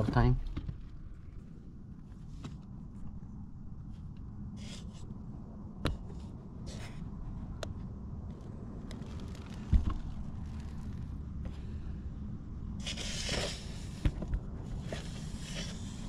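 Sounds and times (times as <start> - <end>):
scrapes and rustling: 8.3 - 11.8.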